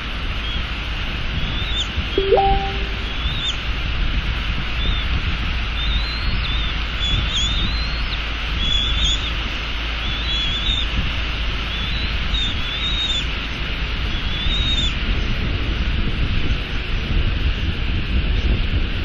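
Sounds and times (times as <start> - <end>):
high wavering bird chirps: 2.2 - 3.6
wind buffeting microphone: 10.8 - 19.0.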